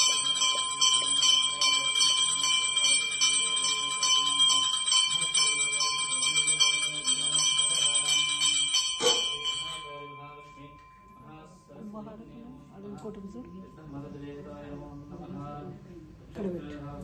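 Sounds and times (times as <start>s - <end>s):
temple bells ringing: 0.0s - 12.2s
low bell tone: 0.0s - 15.2s.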